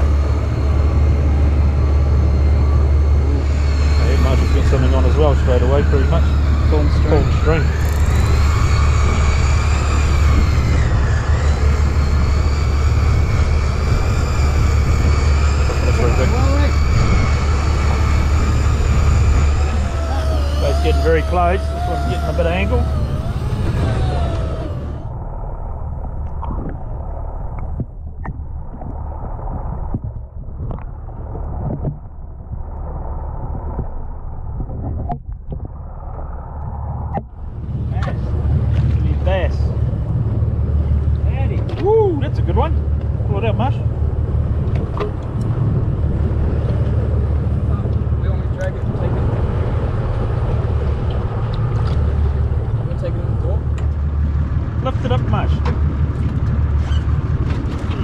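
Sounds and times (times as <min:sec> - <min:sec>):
fishing reel motor whining: 0:00.0 - 0:25.2
muffled water rushing: 0:00.0 - 0:58.0
steady low hum: 0:00.0 - 0:58.0.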